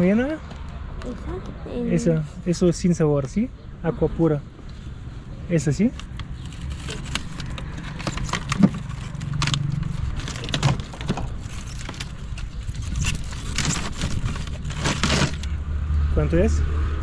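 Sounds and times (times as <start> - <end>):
low rumble of street traffic: 0.0 - 17.0
plastic bottles knocking and crinkling: 6.8 - 15.6.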